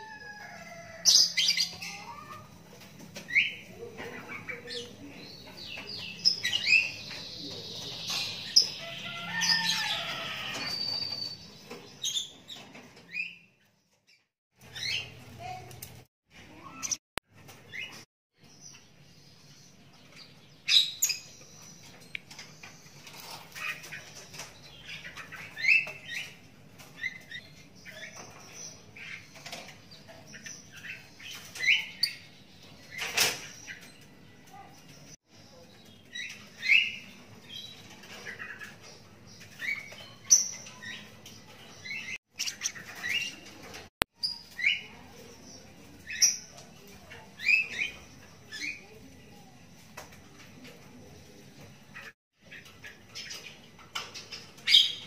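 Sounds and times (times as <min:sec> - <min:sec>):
bird chick chirping: 0:00.0 - 0:13.5, 0:18.7 - 0:49.1.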